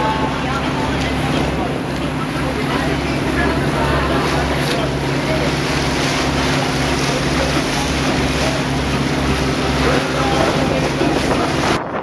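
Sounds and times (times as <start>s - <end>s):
boat motor droning: 0.0s - 12.0s
water rushing past hull: 0.0s - 12.0s
wind on microphone: 9.8s - 12.0s.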